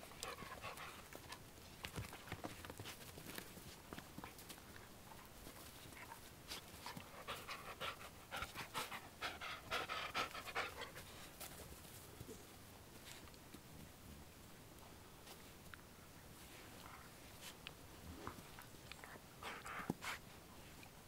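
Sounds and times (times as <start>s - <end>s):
dogs scuffling mouth noises: 0.0s - 9.0s, 15.2s - 21.0s
dogs panting: 0.0s - 11.6s, 18.3s - 20.9s.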